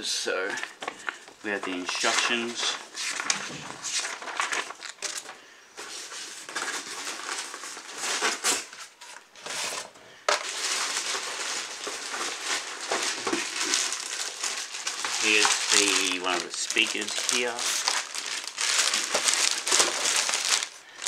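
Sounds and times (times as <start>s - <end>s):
paper and packaging rustling: 0.0s - 21.0s
polystyrene foam crackling: 10.4s - 21.0s.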